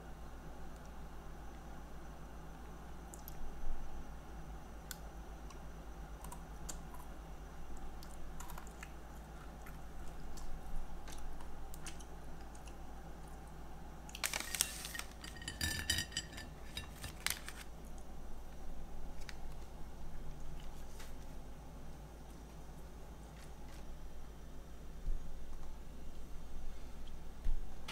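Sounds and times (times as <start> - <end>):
plastic snack bag crinkling: 14.1 - 15.4, 16.9 - 17.8.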